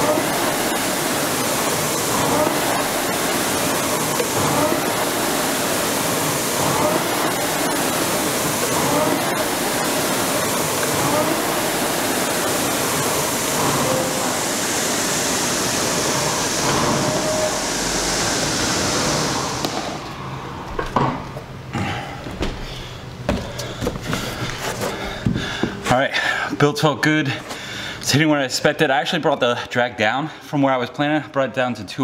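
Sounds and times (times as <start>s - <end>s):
rowing machine flywheel whooshing: 0.0s - 20.7s.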